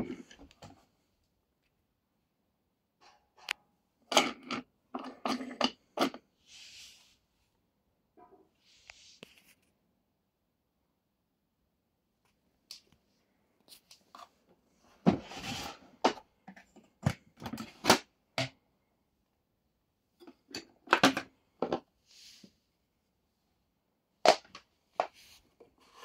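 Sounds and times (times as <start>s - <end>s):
plastic scrape: 15.0s - 16.1s.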